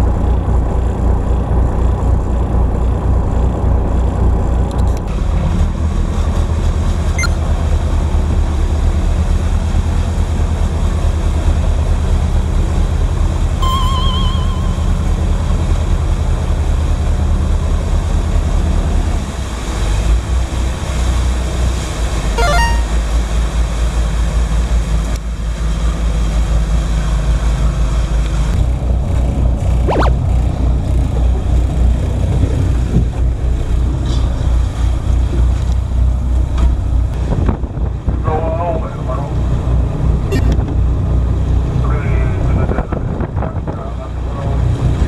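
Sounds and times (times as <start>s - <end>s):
wind: 0.0s - 45.0s
boat engine droning: 6.5s - 24.7s
short high squeaks: 13.6s - 15.5s, 22.4s - 23.0s
rush of sea: 16.5s - 22.8s, 23.5s - 45.0s.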